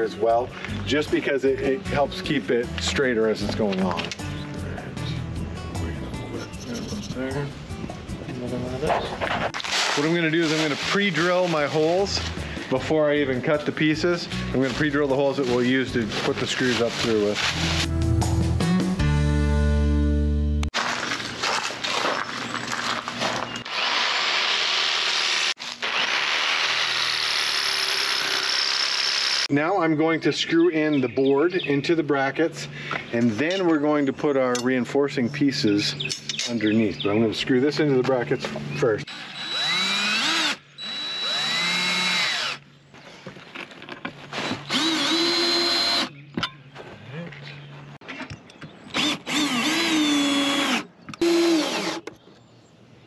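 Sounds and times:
cordless drill driving screws: 0:23.6 - 0:29.5, 0:39.1 - 0:42.6, 0:44.4 - 0:46.1, 0:48.9 - 0:52.1
jigsaw cutting metal: 0:23.6 - 0:29.5, 0:39.1 - 0:42.6, 0:44.4 - 0:46.1, 0:49.0 - 0:52.1.

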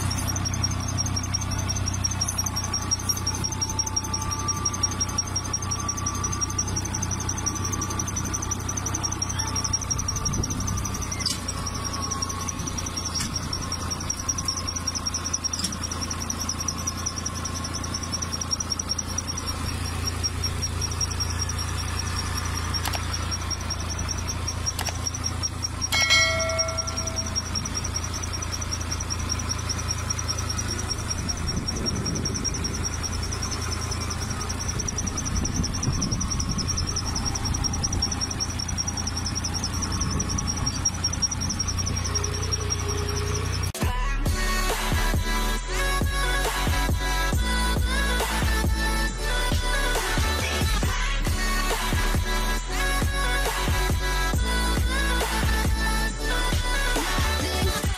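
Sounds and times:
short squeak: 0:00.0 - 0:43.8
engine humming: 0:00.0 - 0:57.9
high warbling squeal: 0:00.0 - 0:57.9.

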